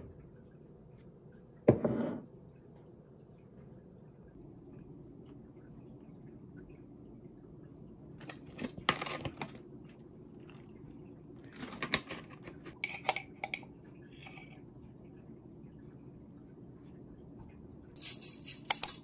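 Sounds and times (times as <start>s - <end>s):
low room hum: 0.0s - 19.0s
glass jar and spoon clinking: 18.0s - 19.0s.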